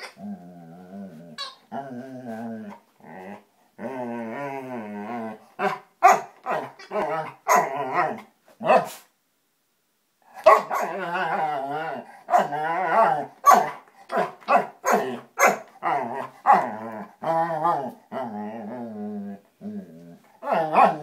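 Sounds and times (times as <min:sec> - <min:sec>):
toy ball warbling giggle: 0:01.4 - 0:01.6
dog barking: 0:05.6 - 0:06.7, 0:08.6 - 0:09.0, 0:10.4 - 0:10.9, 0:13.4 - 0:15.7.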